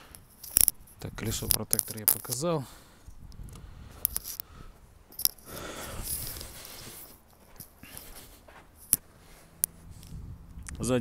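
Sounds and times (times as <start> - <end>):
phone handling rustle: 0.1 - 2.5, 3.6 - 4.5
footsteps in snow: 5.8 - 10.0.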